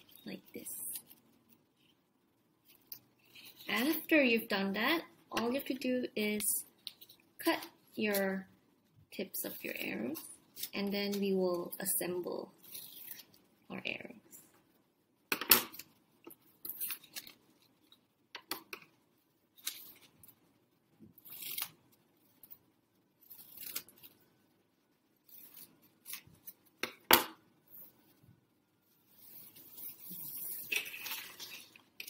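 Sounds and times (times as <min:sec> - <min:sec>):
paper rustling: 0:16.4 - 0:18.0, 0:29.0 - 0:32.0.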